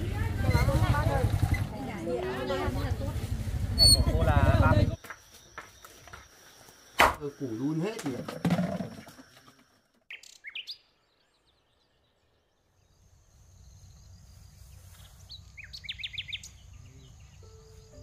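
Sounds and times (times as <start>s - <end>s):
open country background noise: 0.0s - 18.0s
birds chirping: 9.1s - 18.0s.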